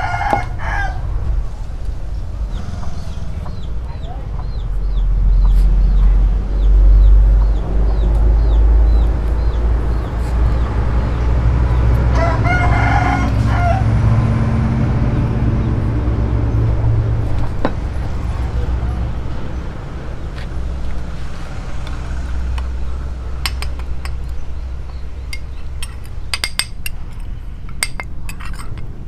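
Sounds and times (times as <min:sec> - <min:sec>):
rooster crowing: 0:00.0 - 0:01.1, 0:12.1 - 0:14.0
steady low rumble: 0:00.0 - 0:29.0.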